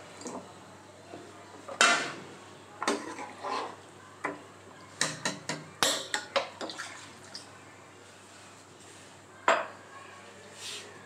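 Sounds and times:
metal ladle scraping cooking pot: 2.9 - 3.8.

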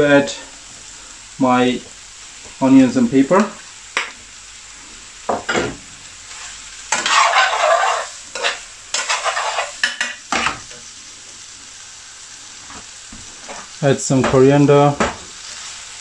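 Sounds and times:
food sizzling in a pan: 0.0 - 16.0
metal spoon scraping a pan: 6.4 - 10.6.

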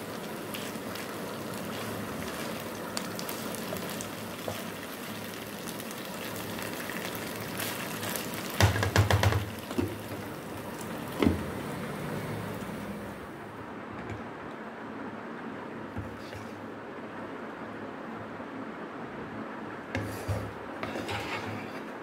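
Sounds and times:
food sizzling in a wok: 0.0 - 13.3
spatula scraping a pan: 20.0 - 22.0.

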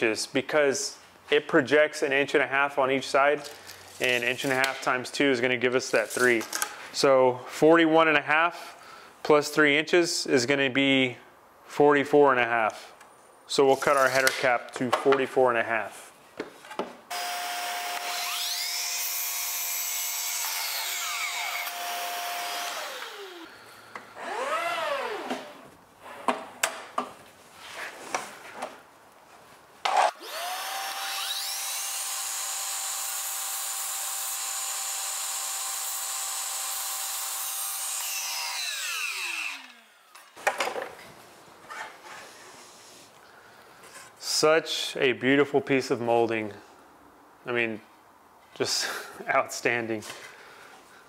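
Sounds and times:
miter saw motor whining: 20.5 - 23.6, 24.2 - 25.6, 30.1 - 33.1, 38.3 - 40.3.

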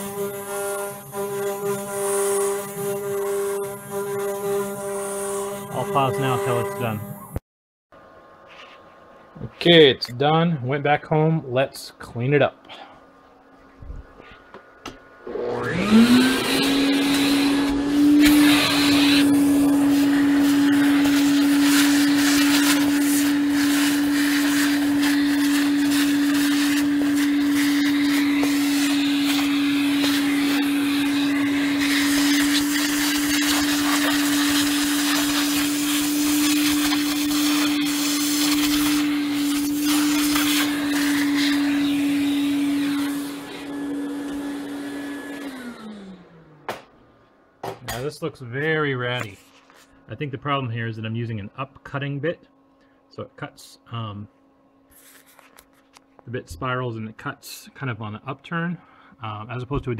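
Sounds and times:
shop vacuum motor whining: 0.0 - 7.4, 12.6 - 48.0.

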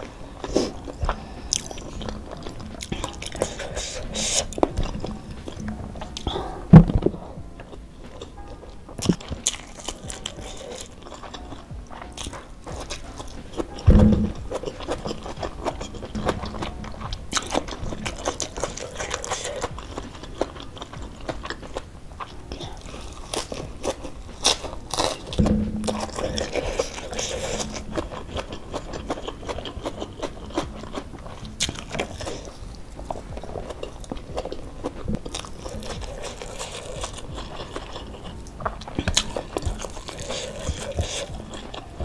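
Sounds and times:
wet chewing: 0.0 - 42.0
dull bump: 13.6 - 18.1.

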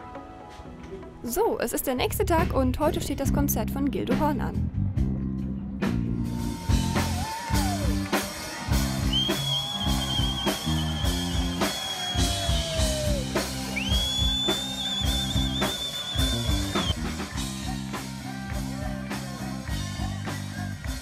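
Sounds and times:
bass line: 2.0 - 21.0
rock music: 4.2 - 21.0
drum kit beating: 5.8 - 21.0.

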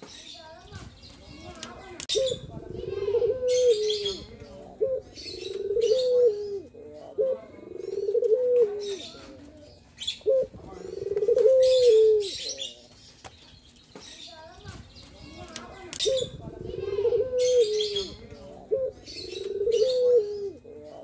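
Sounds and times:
dove cooing: 2.1 - 12.8, 16.0 - 21.0.

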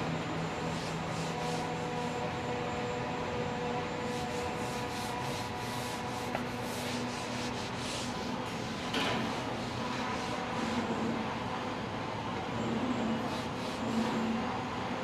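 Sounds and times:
factory hum: 0.0 - 15.0
hand rubbing leather: 0.7 - 2.2, 4.1 - 10.9.

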